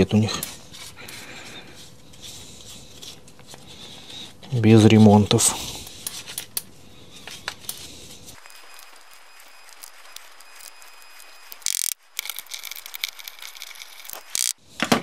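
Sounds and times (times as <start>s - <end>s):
plastic parts clicking and rattling: 11.6s - 14.6s.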